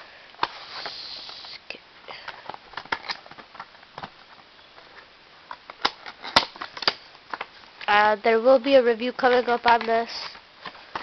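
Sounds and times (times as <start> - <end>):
cardboard sliding rustle: 0.4 - 1.6.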